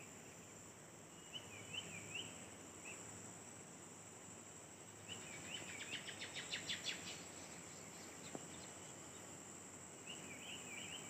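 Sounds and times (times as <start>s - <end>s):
insects droning: 0.0s - 11.0s
bird singing: 1.1s - 3.1s, 5.0s - 9.4s, 10.0s - 11.0s.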